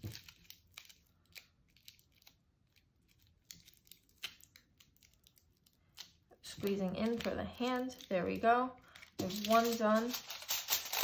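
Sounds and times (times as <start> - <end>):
tinfoil crinkling: 6.7 - 11.0.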